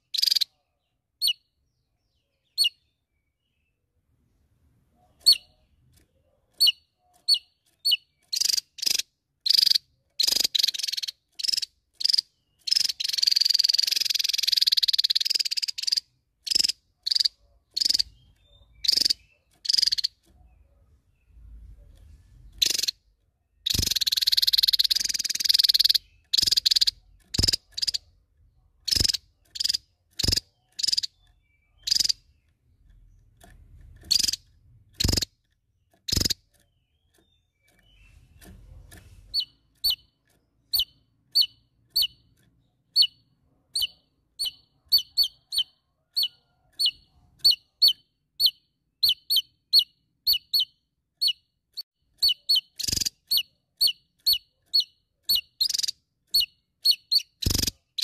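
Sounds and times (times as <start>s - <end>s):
bird rolling trill: 23.7s - 28.1s, 34.1s - 35.3s
bird high-pitched notes: 39.3s - 40.1s, 40.7s - 42.3s.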